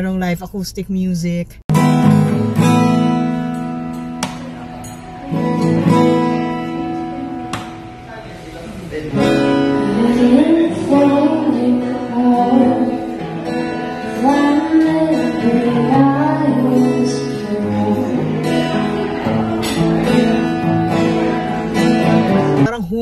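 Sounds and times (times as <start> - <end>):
acoustic guitar strummed and picked: 1.7 - 23.0
woman singing: 9.5 - 13.4, 14.0 - 18.9.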